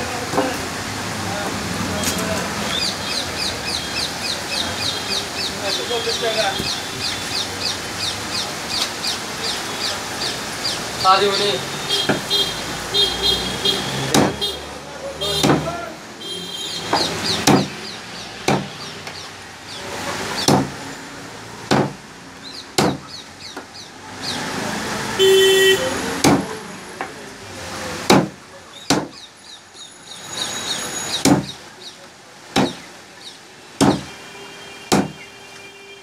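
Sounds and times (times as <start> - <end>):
cleaver chopping on wooden block: 14.1 - 14.4, 15.3 - 15.8, 16.8 - 17.8, 18.4 - 19.2, 20.4 - 20.8, 21.7 - 22.0, 22.8 - 23.7, 26.2 - 27.1, 28.0 - 29.2, 31.2 - 31.6, 32.5 - 32.9, 33.8 - 34.1, 34.9 - 35.2.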